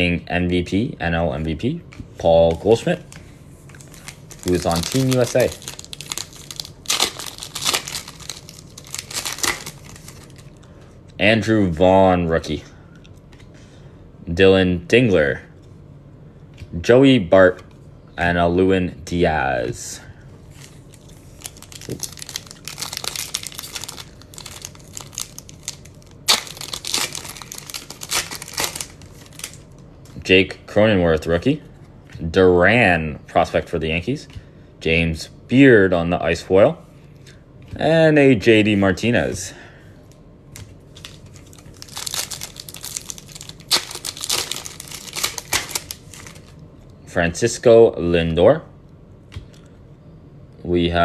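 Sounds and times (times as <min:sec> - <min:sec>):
foil wrapper crinkling: 0:03.7 - 0:10.6, 0:20.6 - 0:29.7, 0:40.9 - 0:46.6
foil wrapper tearing: 0:03.8 - 0:10.4, 0:20.9 - 0:29.6, 0:41.0 - 0:46.5.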